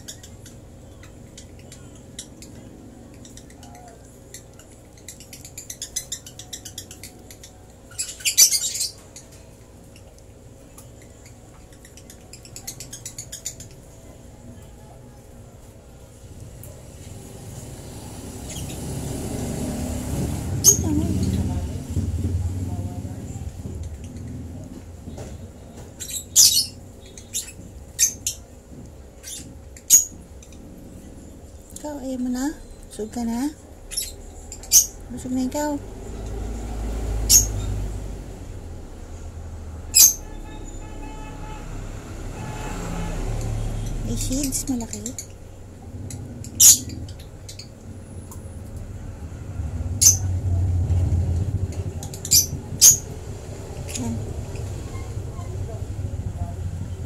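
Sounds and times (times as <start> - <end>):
baby bird squeaking: 0.0 - 10.1, 10.9 - 14.1, 20.6 - 21.6, 25.9 - 28.6, 29.2 - 30.7, 31.5 - 35.8, 37.2 - 37.8, 39.9 - 40.8, 43.8 - 45.4, 46.0 - 47.8, 50.0 - 50.3, 52.0 - 53.2
chick begging squeaks: 25.9 - 28.6, 46.0 - 47.8.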